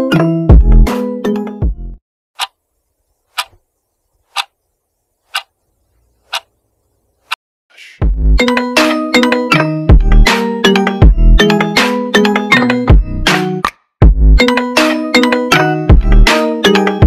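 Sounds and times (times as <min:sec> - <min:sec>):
clock ticking: 0:03.3 - 0:03.6, 0:04.3 - 0:04.6, 0:05.3 - 0:05.5.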